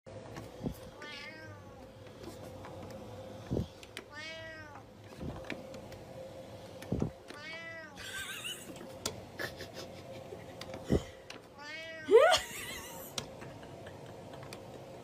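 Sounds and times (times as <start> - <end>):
cat meowing: 1.0 - 1.8, 4.1 - 4.8, 7.4 - 8.0, 11.6 - 12.2.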